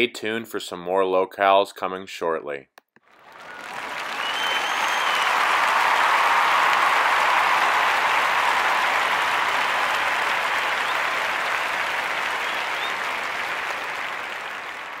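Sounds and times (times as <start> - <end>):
crowd applauding: 3.0 - 15.0.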